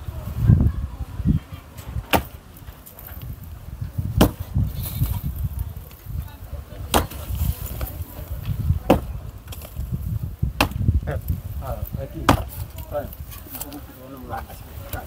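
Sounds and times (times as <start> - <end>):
sledgehammer striking block wall: 2.0 - 2.4, 4.2 - 4.5, 6.9 - 7.3, 8.8 - 9.1, 10.6 - 10.9, 12.2 - 12.5.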